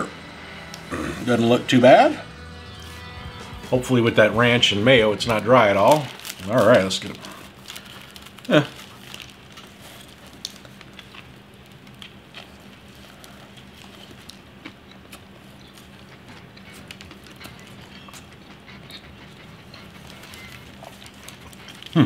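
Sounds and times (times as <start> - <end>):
low steady hum: 0.0 - 22.0
person chewing: 7.3 - 22.0.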